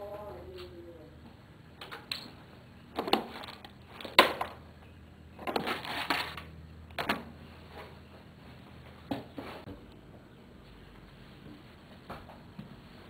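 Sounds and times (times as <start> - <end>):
knocks and scuffs: 7.7 - 13.0.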